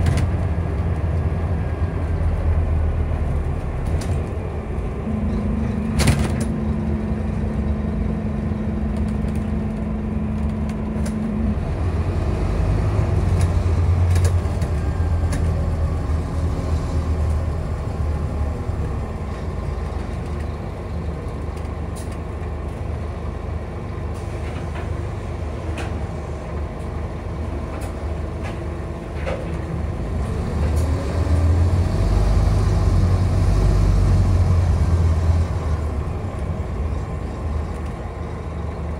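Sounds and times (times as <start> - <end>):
rising engine whine: 0.0 - 21.0
bus engine running: 0.0 - 38.9.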